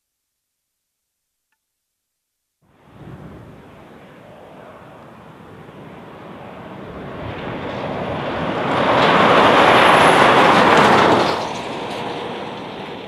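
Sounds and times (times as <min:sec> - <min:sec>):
truck passing at highway speed: 0:02.7 - 0:13.0.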